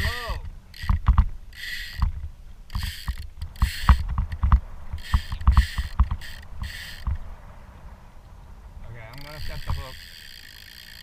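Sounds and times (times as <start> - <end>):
waves knocking on kayak hull: 2.0 - 7.4, 9.1 - 10.0.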